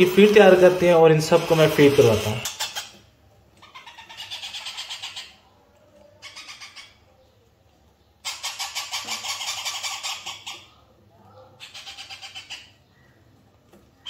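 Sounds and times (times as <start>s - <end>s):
parakeet chick begging calls: 2.1s - 3.0s, 3.6s - 5.4s, 6.2s - 7.1s, 8.2s - 10.7s, 11.6s - 12.9s.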